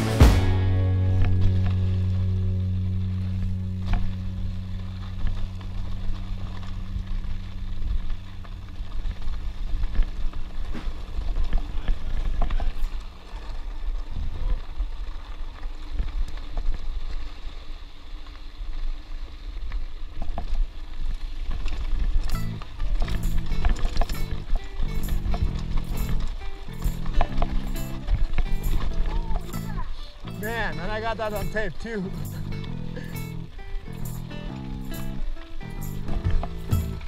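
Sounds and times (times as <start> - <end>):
low steady tone: 0.0 - 10.1, 22.3 - 37.0
bike tyres rumbling on gravel: 0.0 - 37.0
bike clicks and rattles: 5.0 - 37.0.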